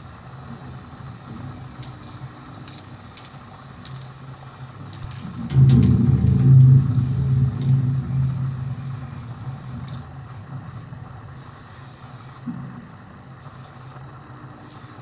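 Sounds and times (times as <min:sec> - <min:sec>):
vehicle engine rumbling: 0:00.0 - 0:15.0
spray paint can hissing: 0:01.8 - 0:05.2, 0:08.9 - 0:12.5, 0:13.4 - 0:15.0.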